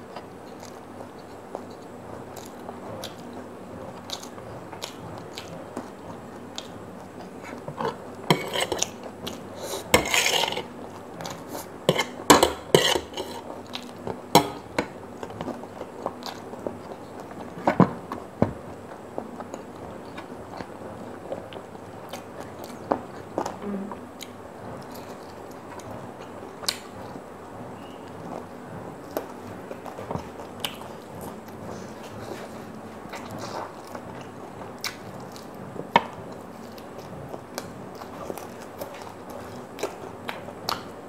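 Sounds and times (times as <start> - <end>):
close-up chewing: 0.1 - 23.6, 27.8 - 41.0
fork scraping on ceramic plate: 7.8 - 8.9, 9.6 - 10.7, 11.9 - 13.4.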